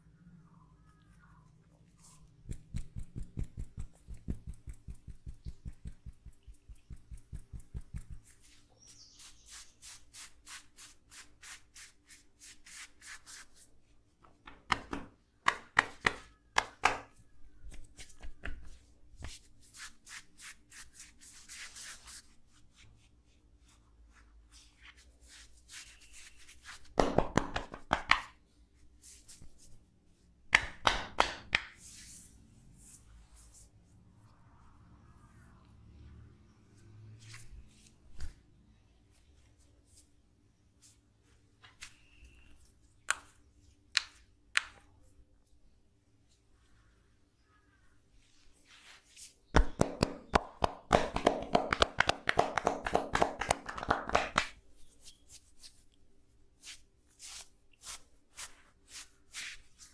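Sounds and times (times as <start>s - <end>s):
soft rubbing: 1.8s - 14.1s, 48.1s - 49.5s, 54.7s - 59.9s
hands tapping on cloth: 2.4s - 8.3s, 26.9s - 28.3s, 49.6s - 54.6s.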